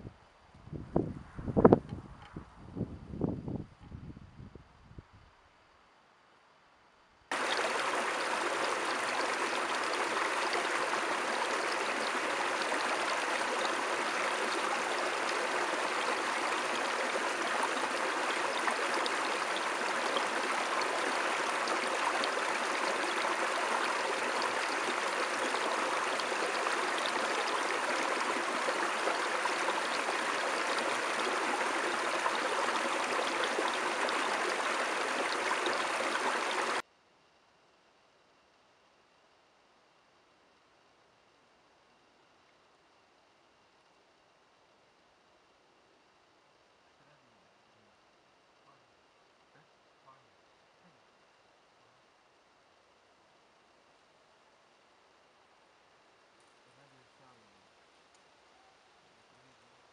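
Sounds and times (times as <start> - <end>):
stream running over rocks: 7.3 - 36.8.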